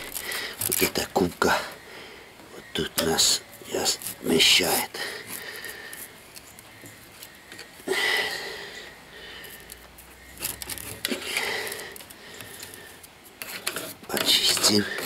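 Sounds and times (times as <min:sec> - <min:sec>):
screwdriver scraping metal: 0:10.3 - 0:12.8, 0:13.4 - 0:15.0.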